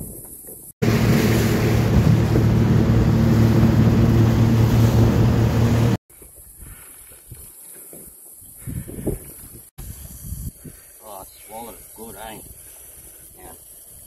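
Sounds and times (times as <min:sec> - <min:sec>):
outboard motor running: 0:00.8 - 0:06.0
water rushing: 0:00.8 - 0:06.0
wind on microphone: 0:08.4 - 0:11.0, 0:11.8 - 0:14.0.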